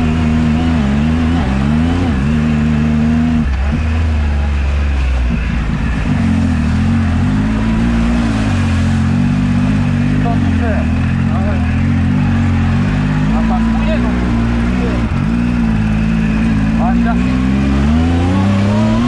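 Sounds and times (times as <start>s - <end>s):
engine revving: 0.0s - 19.0s.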